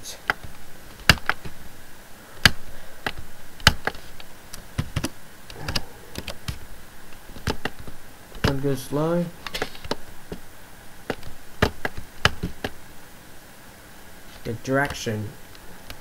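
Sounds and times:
keyboard and mouse clicks: 4.8 - 6.6, 11.1 - 12.8.

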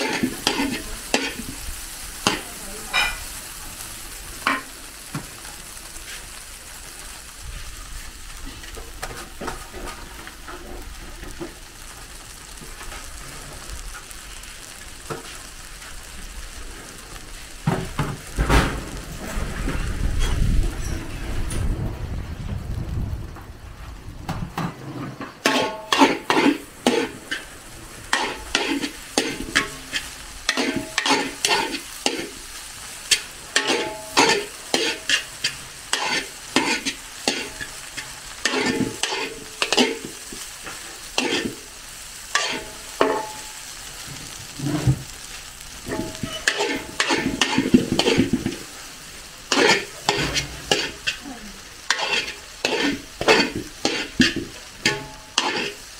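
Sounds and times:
metal ladle scraping a wok: 0.0 - 3.4, 25.1 - 41.7, 42.3 - 43.5, 45.8 - 48.7, 49.5 - 51.2, 51.8 - 55.9
food sizzling: 0.0 - 55.9.

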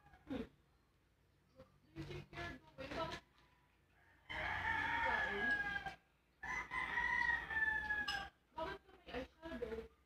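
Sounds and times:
rooster crowing: 3.8 - 8.3.

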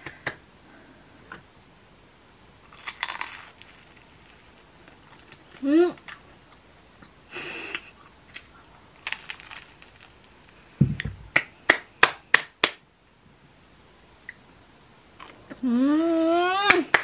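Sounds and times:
hands clapping: 0.0 - 0.4, 11.0 - 12.8, 16.7 - 17.0
crisp rustle: 2.7 - 5.6, 8.9 - 10.7
low thump: 10.8 - 11.3.

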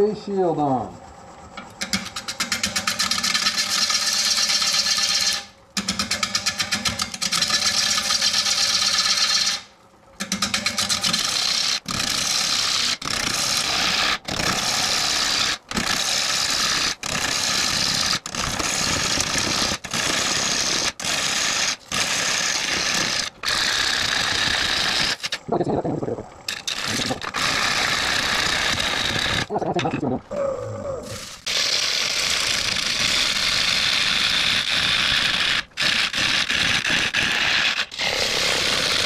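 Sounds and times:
wood lathe turning tool cutting: 10.7 - 25.4, 26.5 - 29.5.

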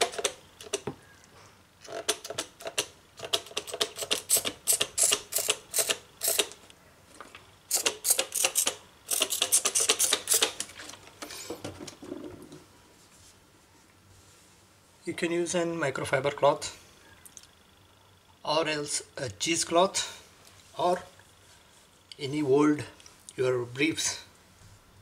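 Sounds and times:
spray bottle squirting: 7.7 - 10.6.

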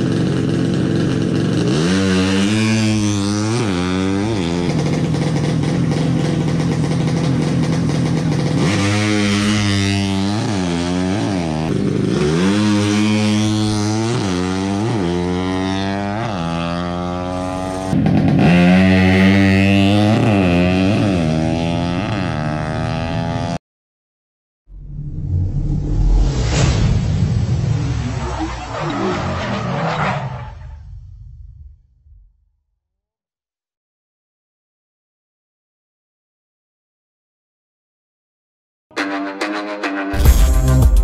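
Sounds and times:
motorcycle engines revving: 0.0 - 23.6.

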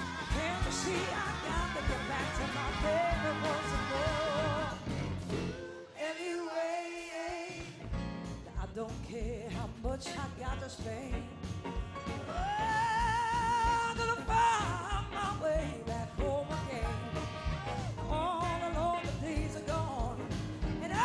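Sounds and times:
woman singing: 0.0 - 4.8, 8.6 - 11.3, 12.3 - 17.1, 18.1 - 21.0
drum beat: 0.0 - 5.5
electric guitar: 0.0 - 5.9, 7.6 - 21.0.

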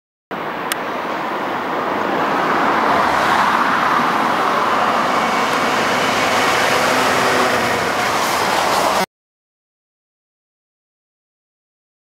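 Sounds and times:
diesel locomotive engine drone: 0.3 - 9.1
wheels rumbling on rails: 0.4 - 9.1.

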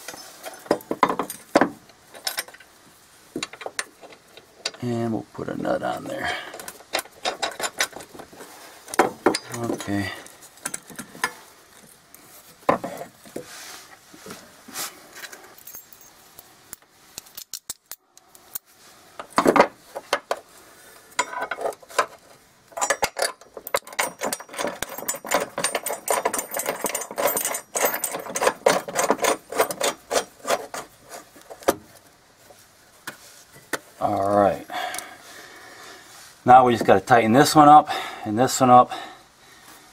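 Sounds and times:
small metal hardware clinking: 0.0 - 2.7, 6.4 - 8.3, 8.9 - 11.9, 15.5 - 16.5, 21.2 - 30.9.

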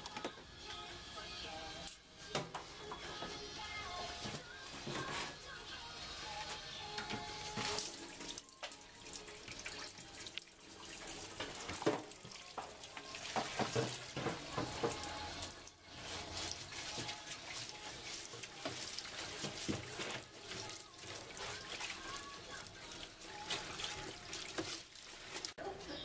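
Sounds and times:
water running and splashing: 6.4 - 25.6.

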